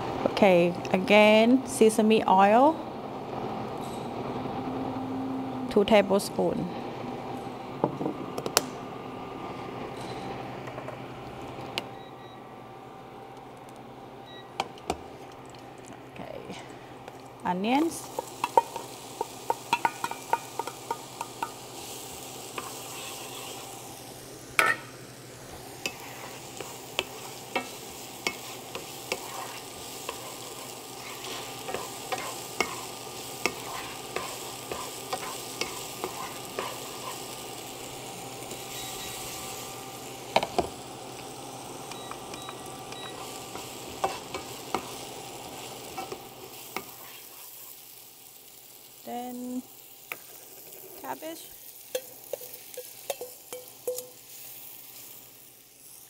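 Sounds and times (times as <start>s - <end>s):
onions sizzling in oil: 0.0s - 12.3s, 14.2s - 56.0s
wooden spoon tapping and scraping pan: 18.2s - 21.6s, 51.9s - 54.1s.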